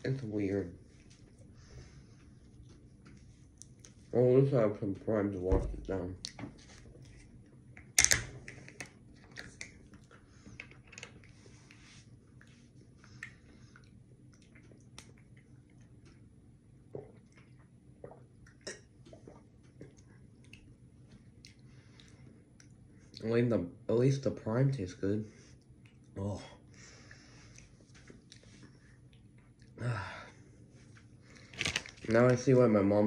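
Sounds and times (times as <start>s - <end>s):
small clicks and rustles: 6.3s - 11.8s, 30.9s - 32.5s.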